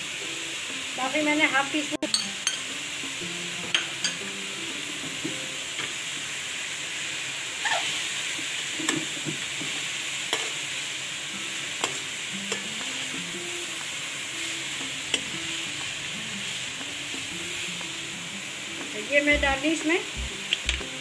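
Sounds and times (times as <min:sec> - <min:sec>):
food sizzling in a wok: 0:00.0 - 0:21.0
spoon clinking against a pan: 0:02.0 - 0:02.7, 0:03.7 - 0:04.3.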